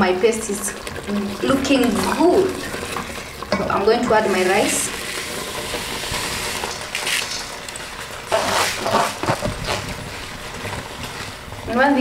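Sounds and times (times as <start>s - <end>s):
rice pouring into a pot: 4.1s - 11.5s.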